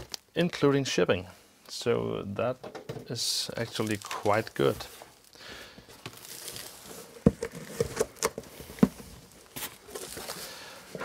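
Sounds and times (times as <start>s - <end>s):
cardboard flaps scraping and rustling: 5.9s - 11.0s.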